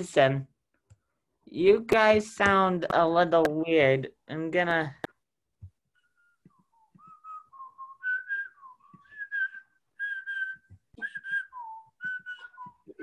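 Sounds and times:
person whistling a tune: 0:06.0 - 0:13.0.

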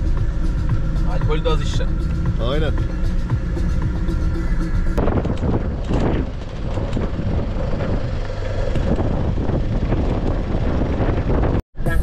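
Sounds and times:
truck engine and tyres rumbling: 0:00.0 - 0:12.0
truck body knocking and rattling: 0:05.0 - 0:11.6.

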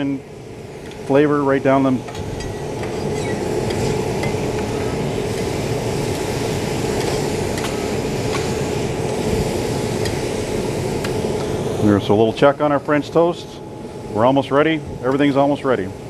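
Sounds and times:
steady fan hum: 0:00.0 - 0:16.0
ventilation fan rushing air: 0:00.0 - 0:16.0.

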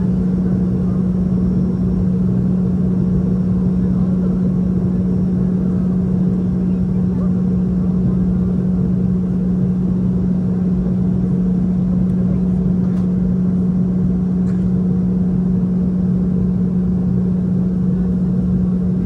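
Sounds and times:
airplane cabin drone: 0:00.0 - 0:19.0.

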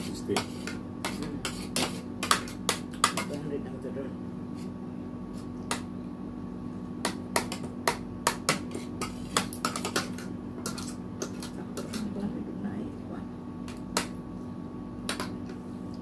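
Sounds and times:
steady hum: 0:00.0 - 0:16.0.

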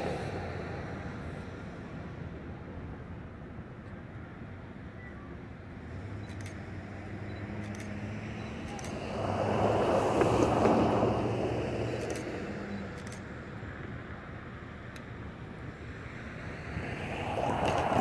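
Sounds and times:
vehicle engine hum: 0:00.0 - 0:18.0
rushing swell: 0:08.9 - 0:12.0.

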